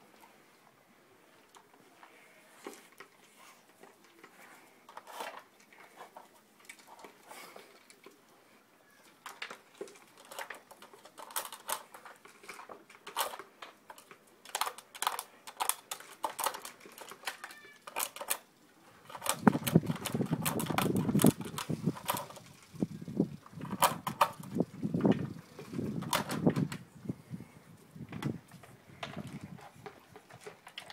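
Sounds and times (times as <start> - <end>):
plastic clicks and clacks: 9.0 - 22.5, 23.4 - 26.8, 28.1 - 30.9.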